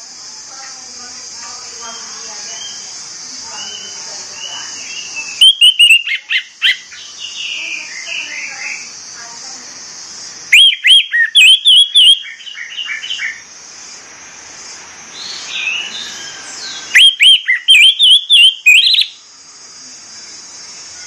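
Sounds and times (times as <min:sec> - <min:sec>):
thrush singing whistled song: 0:01.9 - 0:08.9, 0:10.4 - 0:13.4, 0:15.1 - 0:19.3.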